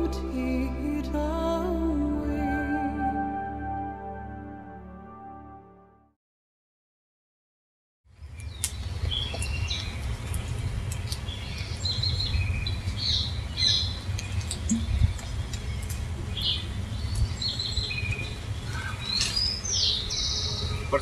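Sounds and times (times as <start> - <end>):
birds chirping and calling: 11.3 - 21.0.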